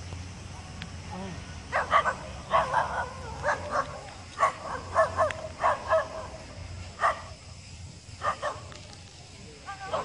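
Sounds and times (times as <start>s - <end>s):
dog barking: 1.7s - 6.4s, 7.0s - 7.3s, 8.2s - 8.7s.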